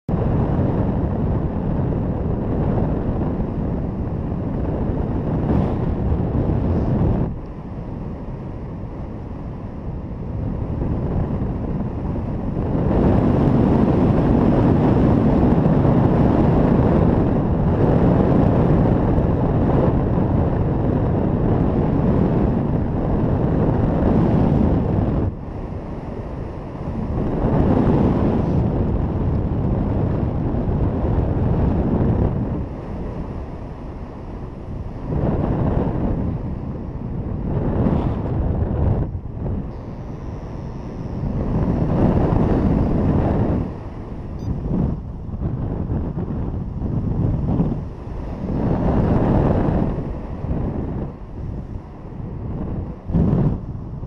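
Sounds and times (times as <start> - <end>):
wind buffeting microphone: 0.0 - 54.0.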